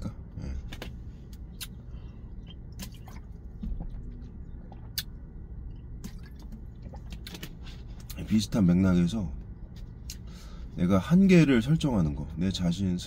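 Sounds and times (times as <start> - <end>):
low steady hum: 0.0 - 13.0
person swallowing: 2.4 - 7.4.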